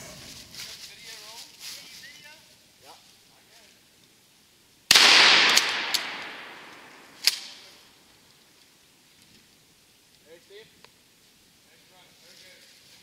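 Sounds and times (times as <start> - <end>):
gunshot with echo: 4.9 - 7.6
short sharp crack: 4.9 - 7.7.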